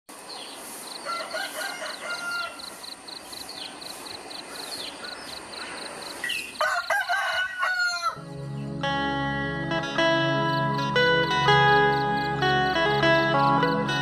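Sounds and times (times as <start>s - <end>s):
small birds chirping: 0.2s - 6.6s
rooster crowing: 1.0s - 2.9s, 6.6s - 8.2s.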